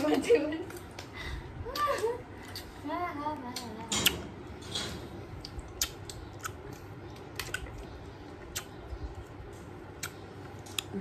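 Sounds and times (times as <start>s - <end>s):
crunchy chewing of crisp food: 5.4s - 11.0s.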